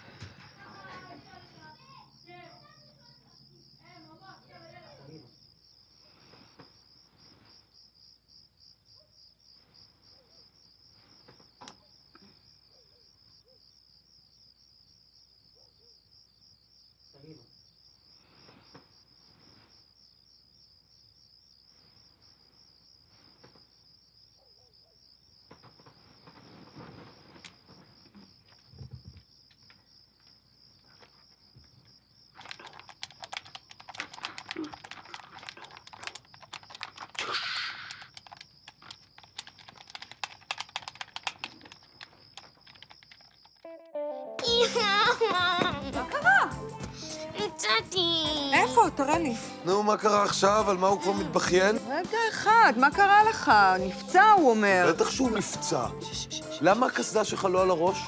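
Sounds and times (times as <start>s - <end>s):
crickets chirping: 0.0s - 43.8s, 44.4s - 58.0s
rapid clicks and taps: 32.3s - 43.6s.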